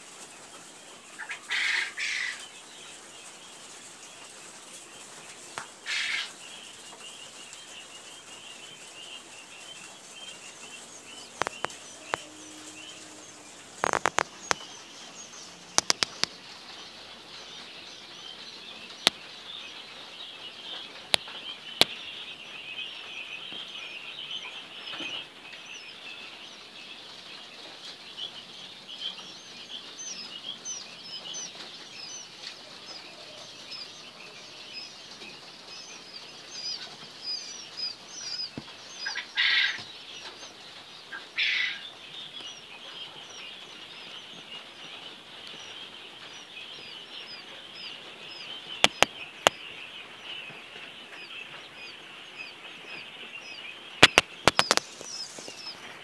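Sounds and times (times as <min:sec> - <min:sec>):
quail chicks peeping: 0:00.0 - 0:56.0
sharp clicks: 0:11.4 - 0:12.3, 0:15.7 - 0:16.4, 0:48.8 - 0:49.6, 0:54.0 - 0:55.7.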